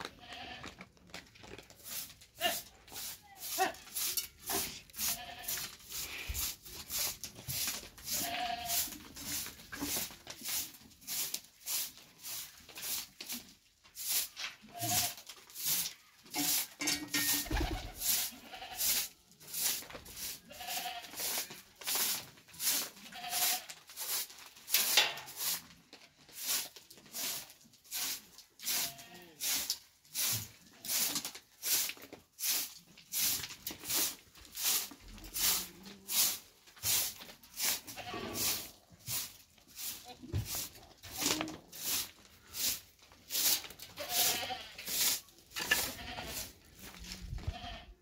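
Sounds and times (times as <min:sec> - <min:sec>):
young goat bleating: 0:00.2 - 0:00.7, 0:05.0 - 0:05.6, 0:08.1 - 0:08.9, 0:17.6 - 0:18.8, 0:20.5 - 0:21.1, 0:23.2 - 0:23.6, 0:37.9 - 0:38.3, 0:44.0 - 0:44.8, 0:45.8 - 0:46.4, 0:47.4 - 0:48.0
hand broom sweeping concrete: 0:01.7 - 0:47.8.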